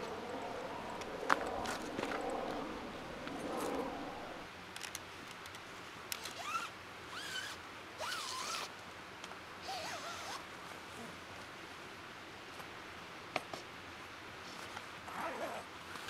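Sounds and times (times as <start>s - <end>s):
tent zipper rasping: 6.2s - 8.7s, 9.6s - 10.4s.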